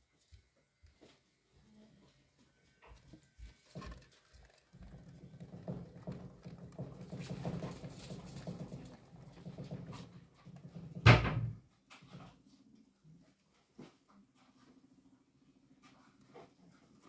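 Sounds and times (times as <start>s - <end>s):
exercise wheel rattling: 3.7s - 11.2s
wheel thump: 5.0s - 11.6s.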